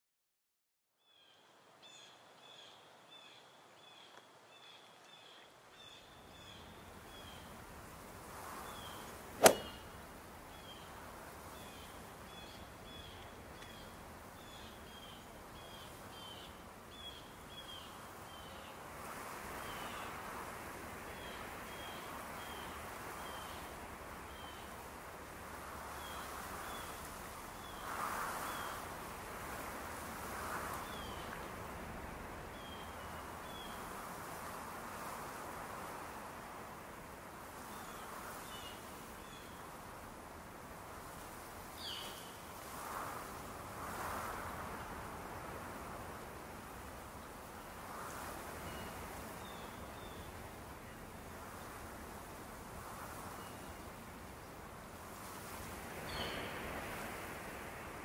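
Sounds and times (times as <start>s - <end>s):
soft wind-like hiss: 1.1s - 58.0s
sharp crack: 9.4s - 9.8s.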